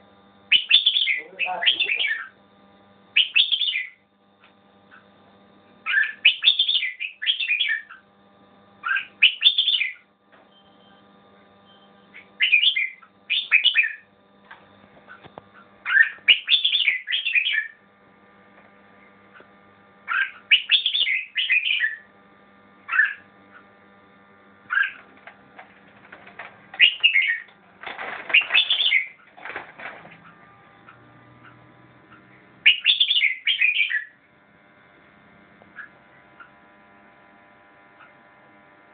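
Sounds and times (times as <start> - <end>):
faint steady hum: 0.0 - 38.9
bird singing chirpy phrases: 0.5 - 2.4, 3.2 - 4.0, 5.8 - 8.0, 8.8 - 10.0, 12.1 - 14.1, 15.9 - 17.8, 20.1 - 22.1, 26.8 - 27.5, 28.3 - 29.2, 30.9 - 34.2.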